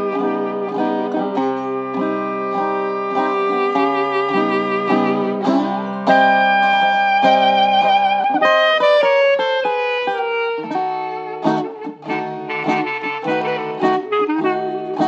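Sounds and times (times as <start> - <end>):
resonator guitar playing jazz: 0.0 - 15.0.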